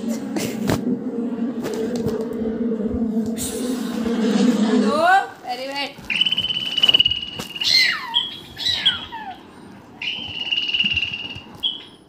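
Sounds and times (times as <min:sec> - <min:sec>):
squawking animal calls from speaker: 0:07.6 - 0:09.4.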